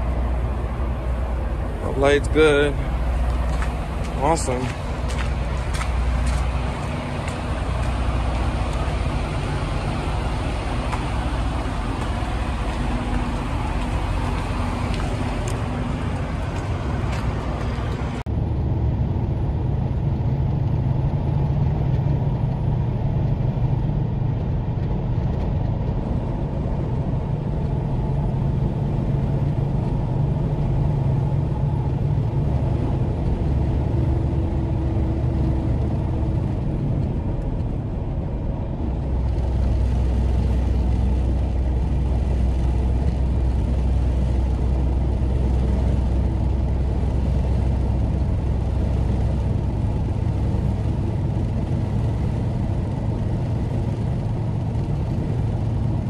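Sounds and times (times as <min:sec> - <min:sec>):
engine and road rumble in cab: 0:00.0 - 0:56.0
truck engine running: 0:00.0 - 0:56.0.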